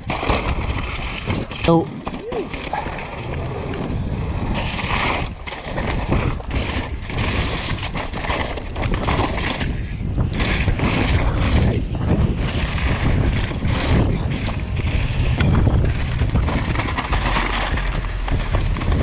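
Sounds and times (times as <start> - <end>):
bike rattling over bumps: 0.0 - 19.0
wind rushing over microphone: 0.0 - 19.0
tyre roar on ground: 2.0 - 5.4.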